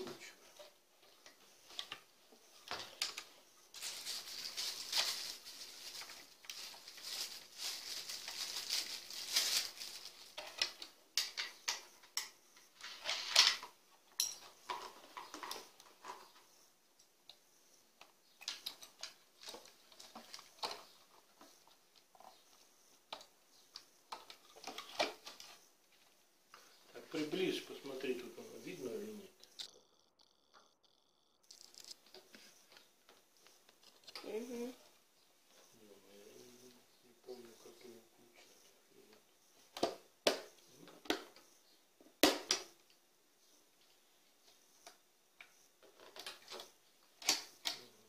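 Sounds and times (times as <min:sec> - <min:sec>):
plastic parts clicking and rattling: 0:01.0 - 0:16.3, 0:45.8 - 0:47.9.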